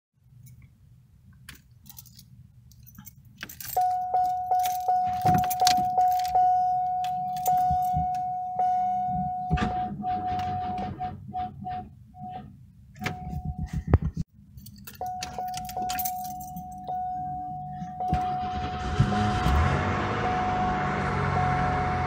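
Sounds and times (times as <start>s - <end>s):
keys jangling: 1.8s - 8.1s, 14.5s - 17.0s
dash warning chime dinging: 3.6s - 10.8s, 14.8s - 22.0s.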